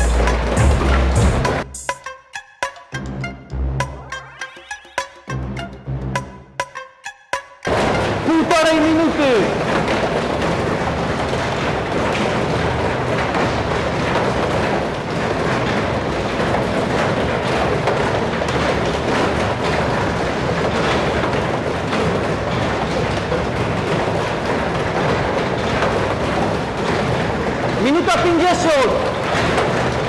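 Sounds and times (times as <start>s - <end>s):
hands and feet knocking on rungs: 0.0s - 3.1s, 5.1s - 30.0s
rattling rumble of moving wall: 7.7s - 30.0s.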